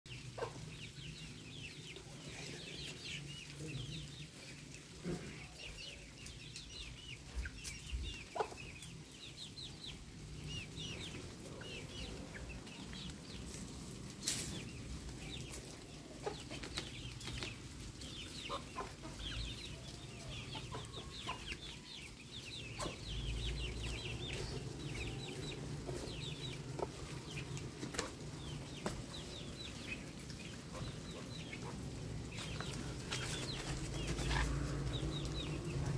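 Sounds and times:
chickens clucking: 0.1 - 35.9
chicks peeping: 0.1 - 35.9.

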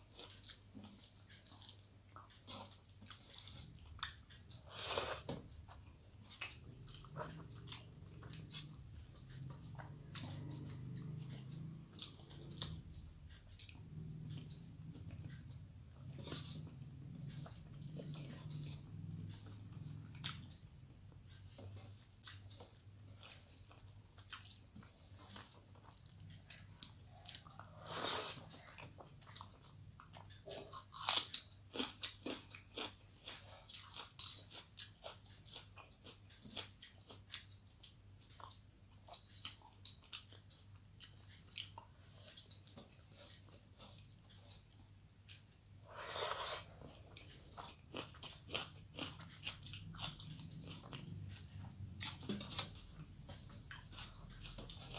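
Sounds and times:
person chewing: 0.0 - 54.9.

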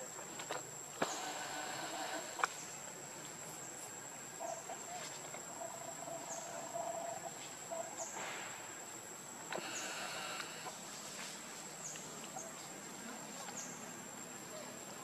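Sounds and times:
high steady insect drone: 0.0 - 15.0
soft rustles: 10.9 - 12.8.

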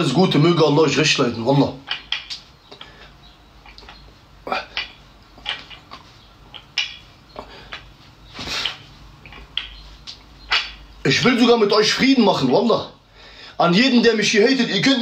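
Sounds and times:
barbell clinking and knocking: 1.8 - 2.9, 3.6 - 7.9, 10.4 - 11.0.

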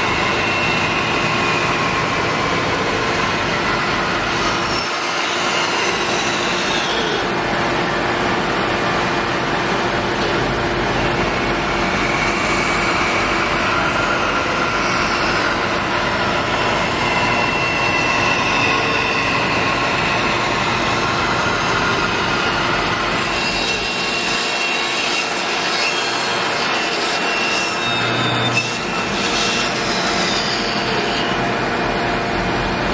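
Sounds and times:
bandsaw cutting wood: 11.9 - 31.4.

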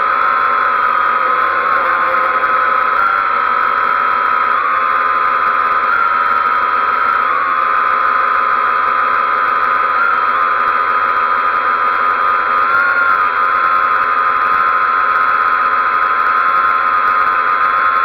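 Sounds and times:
quadcopter propellers whining: 0.0 - 18.0.

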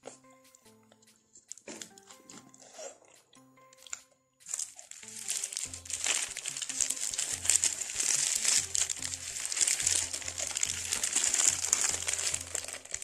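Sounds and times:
background music: 0.0 - 13.0
paper wrapper crinkling: 3.8 - 13.0.

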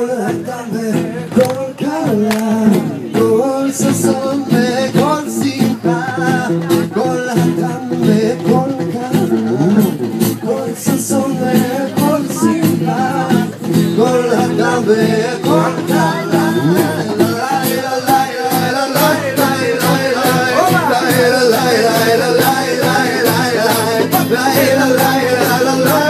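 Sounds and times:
acoustic guitar: 0.0 - 26.0
man singing into a microphone: 0.0 - 26.0.

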